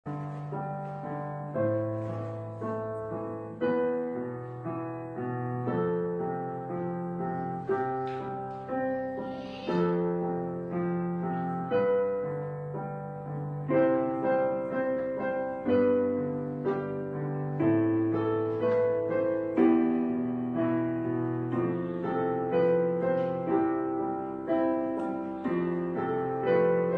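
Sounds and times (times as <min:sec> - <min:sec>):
solo piano chords: 0:00.0 - 0:26.9.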